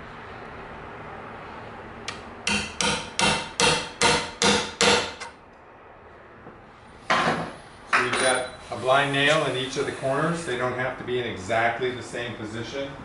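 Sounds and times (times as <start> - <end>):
hammer striking metal punch: 2.4 - 5.4.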